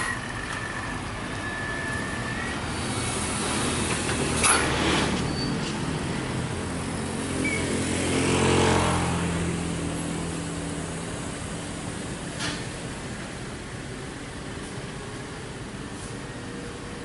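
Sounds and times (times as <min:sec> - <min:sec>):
truck diesel engine at low revs: 0:00.0 - 0:08.2, 0:09.0 - 0:17.0
motorcycles passing: 0:02.8 - 0:11.6.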